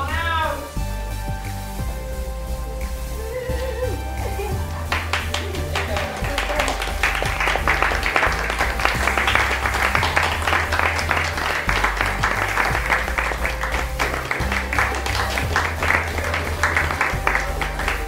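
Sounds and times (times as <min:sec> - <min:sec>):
music with held bass notes: 0:00.0 - 0:18.0
audience applause: 0:03.7 - 0:18.0.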